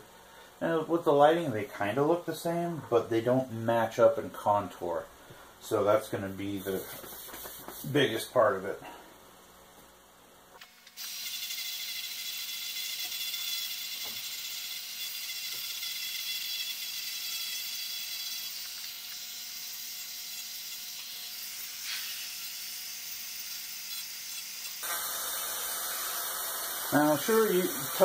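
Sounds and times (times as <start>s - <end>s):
rotary tool sanding wood: 11.1s - 24.9s, 26.7s - 28.0s.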